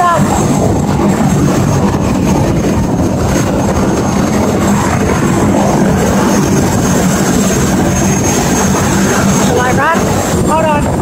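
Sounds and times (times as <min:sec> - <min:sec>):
helicopter turbine and rotor: 0:00.0 - 0:11.0
wind buffeting microphone: 0:00.0 - 0:11.0.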